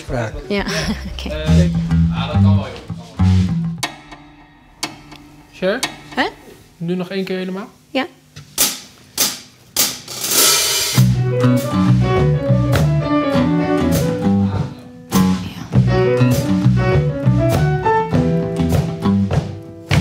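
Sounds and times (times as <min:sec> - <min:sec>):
rock band playing: 0:00.0 - 0:06.7, 0:10.2 - 0:20.0
sharp drum hits: 0:03.2 - 0:07.0, 0:08.6 - 0:12.0
cymbal crash: 0:10.1 - 0:11.2.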